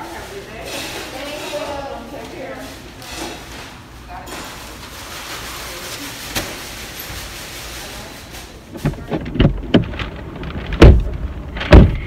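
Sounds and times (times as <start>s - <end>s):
steady background noise: 0.0s - 12.0s
low thumps and knocks in a car: 8.8s - 12.0s.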